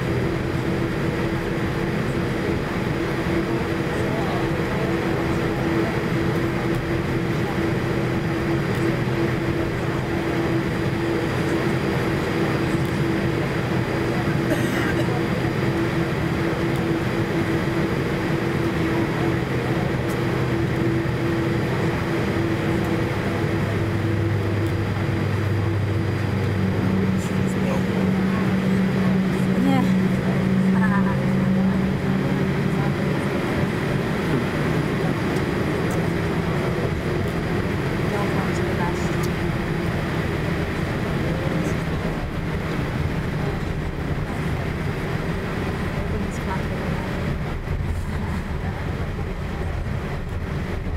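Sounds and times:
jet engine drone: 0.0s - 50.9s
deep hum: 18.8s - 50.9s.

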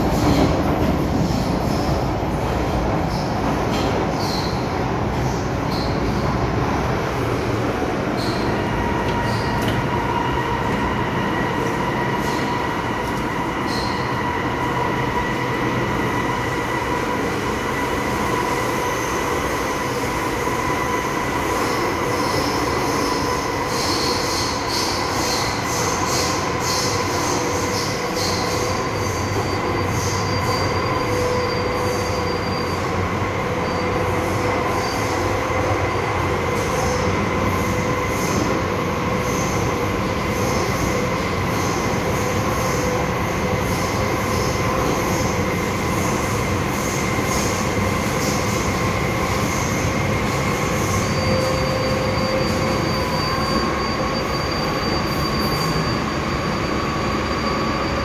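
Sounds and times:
train wheels rumbling on rail: 0.0s - 58.0s
high wheel squeal: 3.1s - 6.3s, 7.9s - 20.1s, 20.8s - 58.0s.

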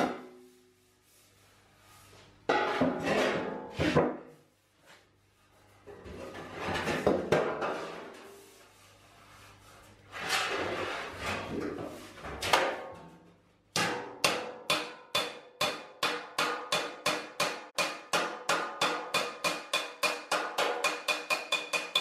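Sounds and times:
metal scraping and handling: 5.7s - 12.4s
hammer blows ringing on metal: 13.8s - 22.0s.

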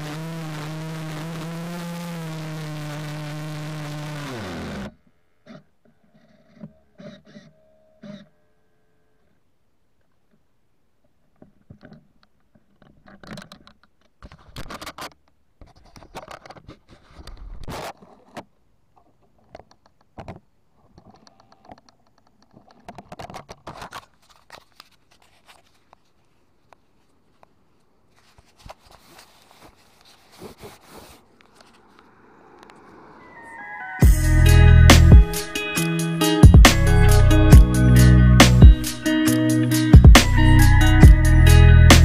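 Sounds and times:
scratching and scraping on microphone: 11.6s - 21.8s, 22.4s - 27.5s, 28.1s - 33.4s.

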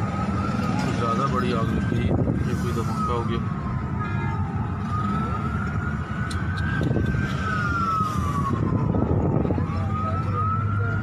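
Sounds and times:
emergency siren wailing: 0.0s - 11.0s.

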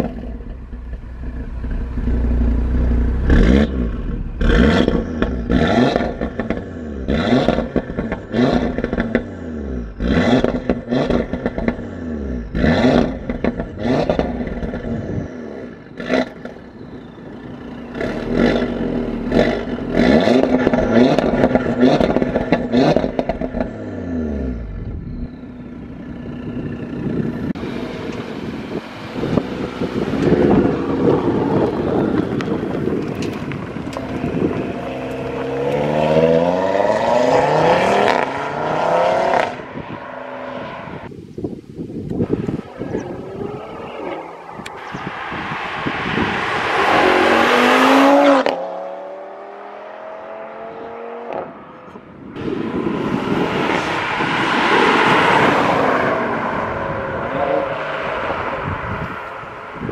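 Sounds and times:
exhaust crackles and pops: 0.0s - 9.3s, 9.9s - 11.9s, 12.5s - 15.0s, 19.3s - 23.8s, 30.0s - 36.0s
car engine revving: 0.0s - 41.1s, 42.2s - 59.9s.

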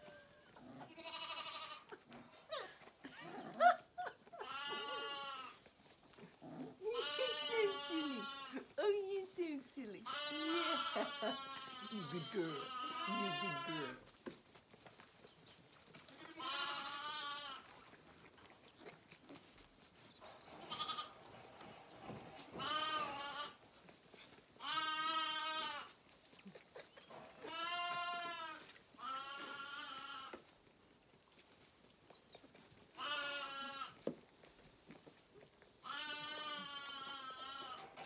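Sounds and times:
lambs bleating: 0.1s - 2.0s, 4.4s - 5.6s, 6.9s - 8.7s, 10.0s - 14.1s, 16.0s - 18.0s, 20.6s - 21.2s, 22.4s - 23.6s, 24.6s - 26.6s, 27.4s - 30.5s, 32.9s - 34.1s, 35.8s - 38.0s.

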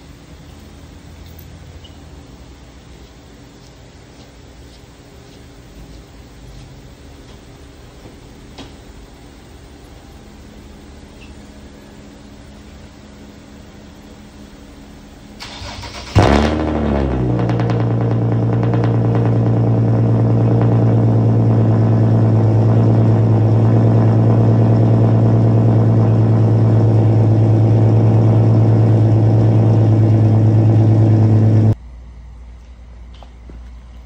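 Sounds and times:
loud car engine idling: 15.4s - 31.8s.

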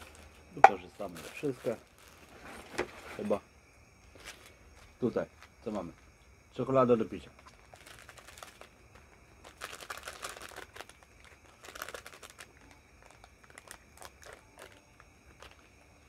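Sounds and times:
plastic sachet crinkling: 0.0s - 2.3s, 7.4s - 16.0s.

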